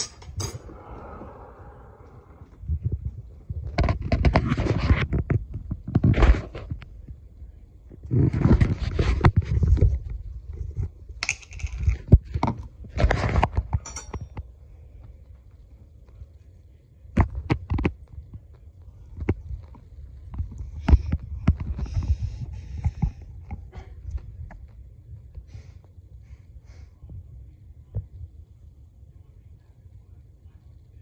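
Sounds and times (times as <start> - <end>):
jar and knife handling noise: 11.2 - 14.4.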